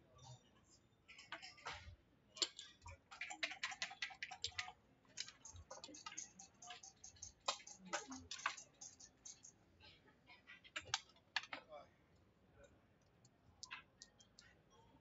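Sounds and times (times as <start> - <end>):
dice and checkers clattering on board: 1.1 - 9.5.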